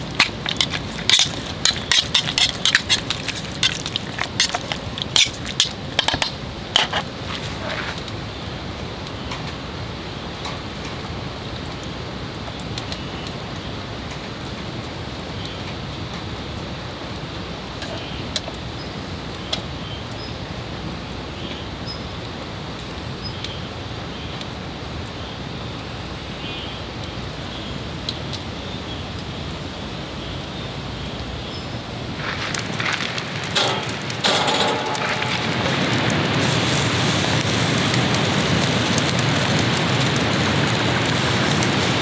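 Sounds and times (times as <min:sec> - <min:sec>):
sharp fire pops: 0:00.0 - 0:08.1, 0:32.2 - 0:42.0
wood fire crackling: 0:00.0 - 0:25.2, 0:30.7 - 0:42.0
steady outdoor hiss: 0:00.0 - 0:42.0.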